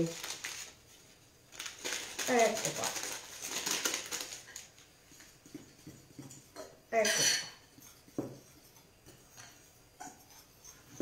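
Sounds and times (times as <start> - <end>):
metal spoon scraping ceramic bowl: 5.1 - 11.0.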